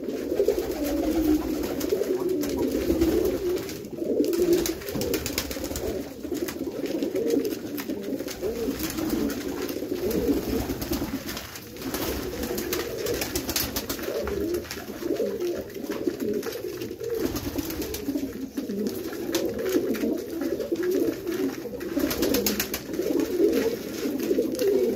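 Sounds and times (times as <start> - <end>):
pigeons cooing: 0.0 - 24.9.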